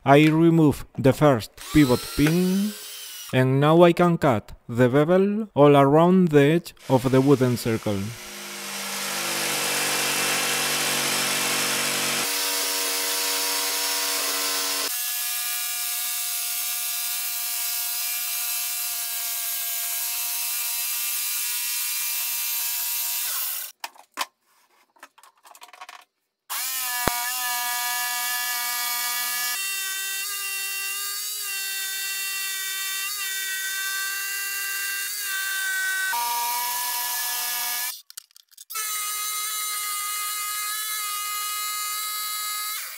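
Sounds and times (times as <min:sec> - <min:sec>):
electric jigsaw cutting wood: 0:01.6 - 0:03.4, 0:06.8 - 0:23.7, 0:26.5 - 0:38.0, 0:38.7 - 0:42.9.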